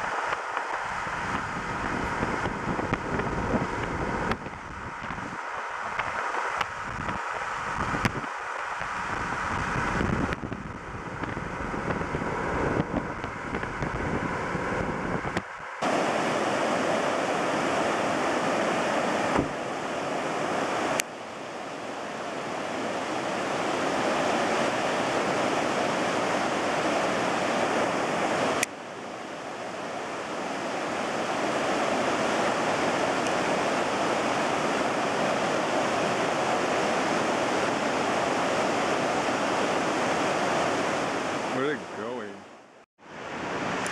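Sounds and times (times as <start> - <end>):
wind and road noise: 0.0 - 43.9
river rapids over rocks: 15.8 - 42.1.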